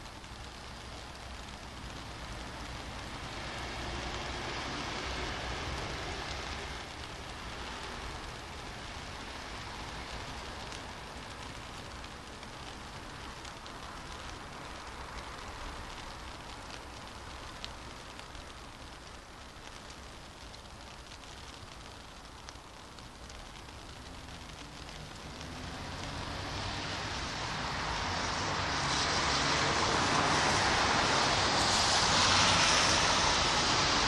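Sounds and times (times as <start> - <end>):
faint drip ticks: 0.0 - 27.3
rain on wet street: 0.0 - 34.0.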